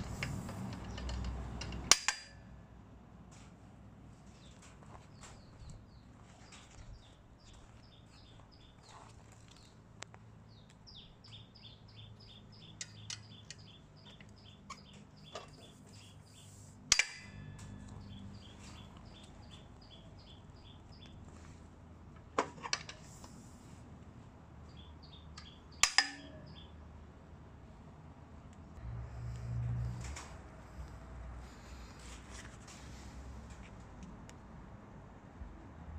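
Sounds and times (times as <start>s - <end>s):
metal parts clicking and clanking: 0.0s - 2.5s, 16.9s - 19.3s, 25.4s - 26.5s
bird chirping: 4.4s - 9.8s, 10.5s - 16.6s, 17.4s - 21.2s, 24.7s - 26.8s.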